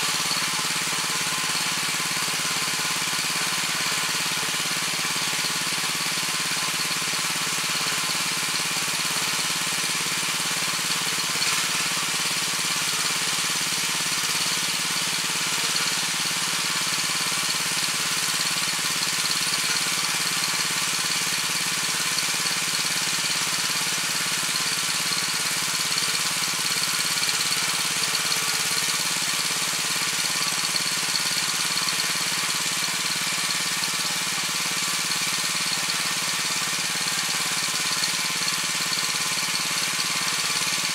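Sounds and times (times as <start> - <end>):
tiller engine running: 0.0 - 40.9
tines churning soil: 0.0 - 40.9.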